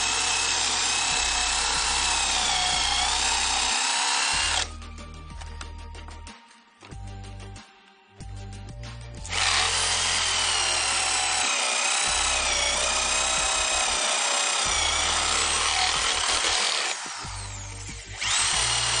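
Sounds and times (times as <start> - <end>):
electric drill whining into wood: 0.0 - 4.7, 9.2 - 19.0.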